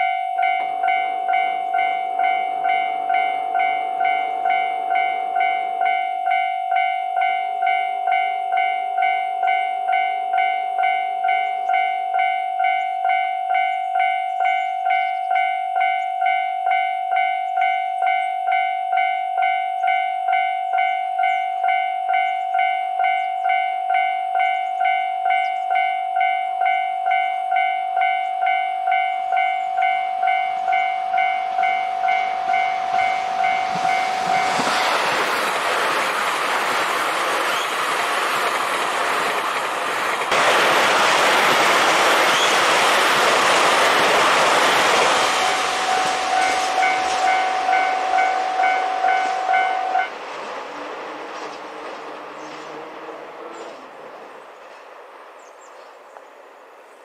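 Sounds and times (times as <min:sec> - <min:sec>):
level crossing bell ringing: 0:00.0 - 0:34.8, 0:43.3 - 0:50.1
train passing: 0:00.0 - 0:57.0.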